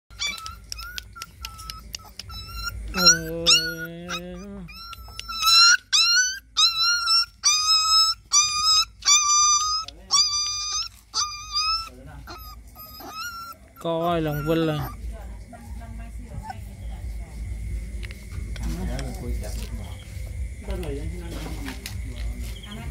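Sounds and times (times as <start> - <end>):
puppy whimpering: 0.1 - 16.8.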